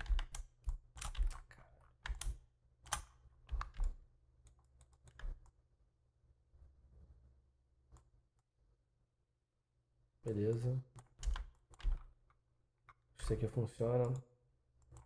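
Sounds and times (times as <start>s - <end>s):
keyboard typing: 0.0s - 5.6s, 10.3s - 12.3s, 14.8s - 15.0s.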